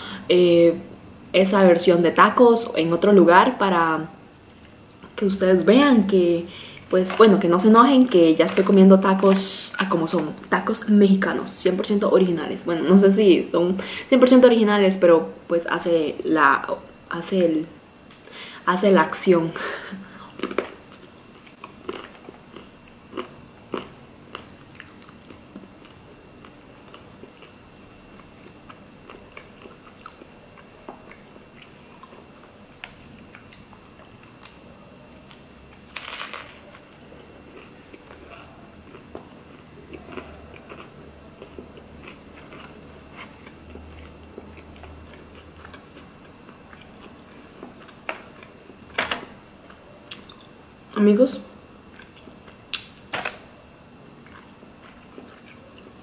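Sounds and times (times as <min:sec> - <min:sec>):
crunching and chewing food: 0:20.2 - 0:50.6, 0:51.8 - 0:53.5, 0:54.1 - 0:56.0.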